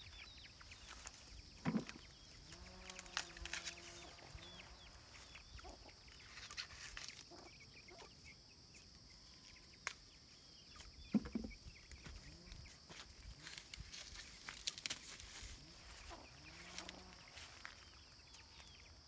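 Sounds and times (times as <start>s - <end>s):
bird chirps: 0.0s - 2.4s, 3.7s - 12.5s
high insect drone: 0.7s - 7.4s, 11.2s - 19.0s
corn stalks snapping and rustling: 2.8s - 3.9s, 6.3s - 7.3s, 13.4s - 16.1s
chickens clucking: 4.2s - 8.9s, 10.8s - 12.8s, 15.6s - 17.2s.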